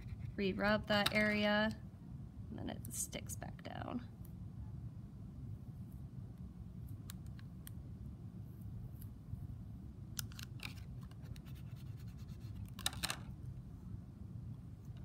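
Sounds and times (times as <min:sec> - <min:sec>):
tape peeling with scratchy rustles: 0:10.2 - 0:13.3.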